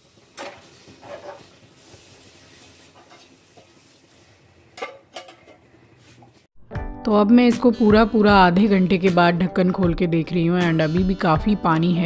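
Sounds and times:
metal pan clanking on stove: 4.8s - 5.6s.

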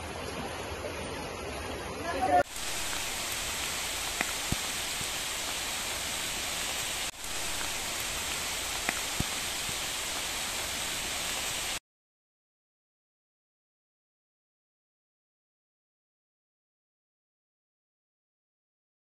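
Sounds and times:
heavy rain falling: 2.1s - 11.8s
light drip taps: 4.0s - 5.2s, 8.7s - 9.8s.

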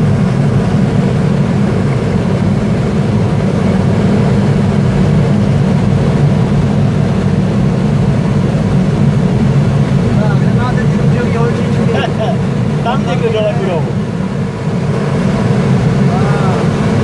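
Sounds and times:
rush of air around glider: 0.0s - 17.0s.

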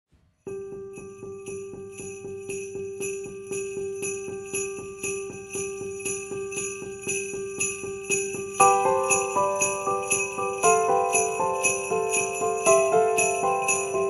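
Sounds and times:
christmas music with sleigh bells: 0.5s - 14.0s.

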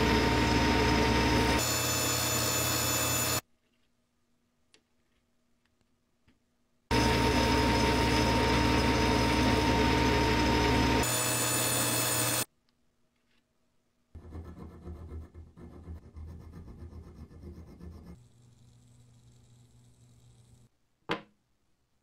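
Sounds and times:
power tool running: 0.0s - 3.4s, 6.9s - 12.5s.

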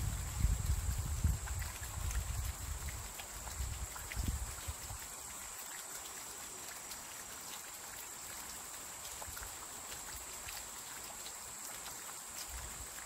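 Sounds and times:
light rain on plants: 0.0s - 13.0s.

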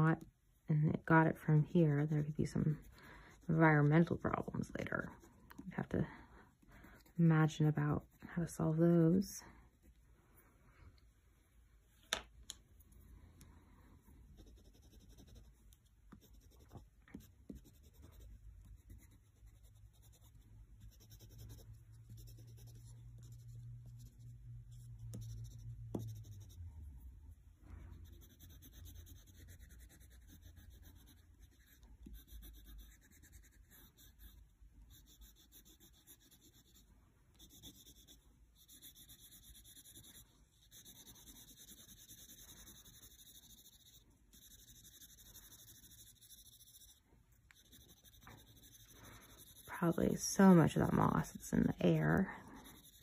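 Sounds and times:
faint low hum: 0.0s - 53.0s
crayons scratching on paper: 1.0s - 5.9s, 14.4s - 26.7s, 27.9s - 51.2s, 51.8s - 53.0s.

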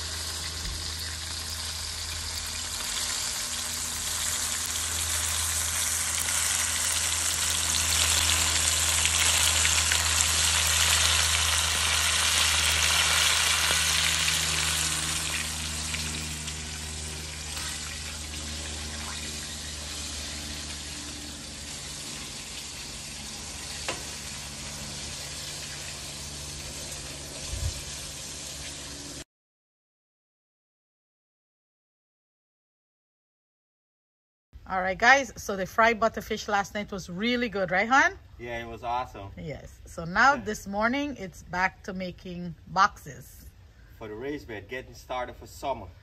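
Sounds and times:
fish sizzling in hot oil: 0.0s - 29.2s
low hum: 0.0s - 29.2s.

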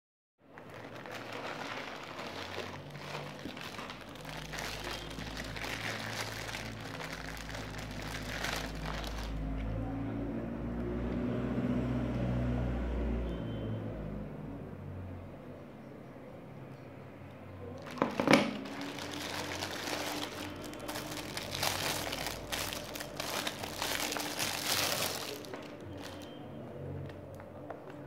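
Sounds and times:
plastic packaging crinkling: 0.5s - 9.5s, 17.8s - 26.4s.

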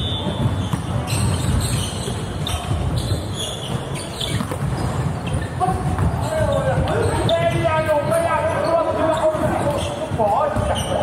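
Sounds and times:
volleyball hits: 0.0s - 8.3s
footfalls on wooden court: 0.0s - 11.0s.

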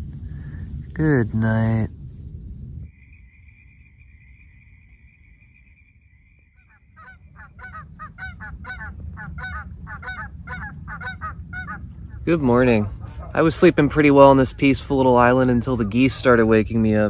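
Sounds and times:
low rumble: 0.0s - 17.0s
geese honking: 3.0s - 16.4s.

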